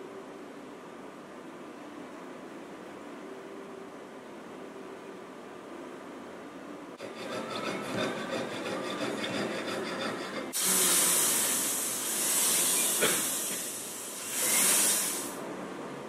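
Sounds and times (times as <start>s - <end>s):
jeweler's saw cutting metal: 7.0s - 15.4s
rotary grinder hissing: 7.0s - 15.4s.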